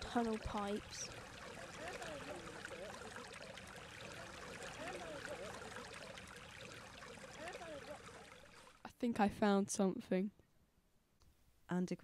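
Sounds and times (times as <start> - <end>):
small stream trickling: 0.0 - 8.9.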